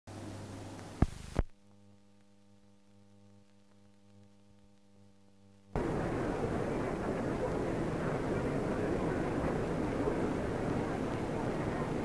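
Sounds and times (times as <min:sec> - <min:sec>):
film soundtrack hiss and hum: 0:00.1 - 0:12.0
loud rush of noise: 0:05.8 - 0:12.0.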